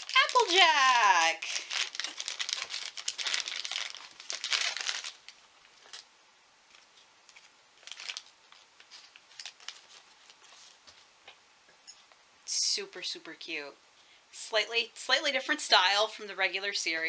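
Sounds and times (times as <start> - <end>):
plastic bag crinkling: 0.0 - 6.1, 6.7 - 10.8.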